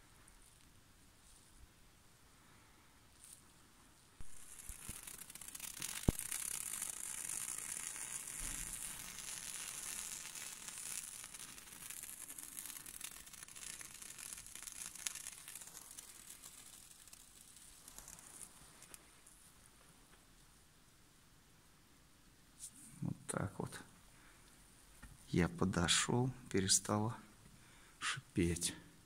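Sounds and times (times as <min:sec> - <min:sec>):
flame hissing and crackling: 0:04.2 - 0:19.8.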